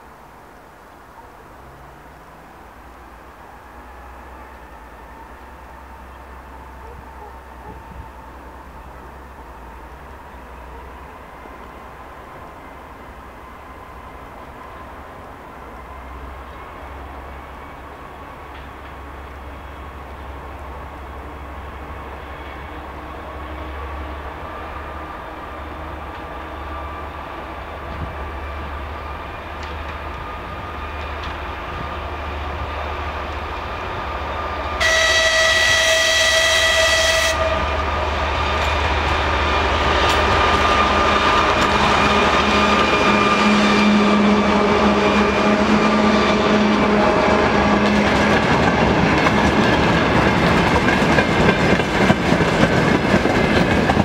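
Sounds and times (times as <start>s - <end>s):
diesel locomotive engines: 0.0s - 54.0s
train horn blast: 34.7s - 48.2s
wheels clattering over rail joints: 47.4s - 54.0s.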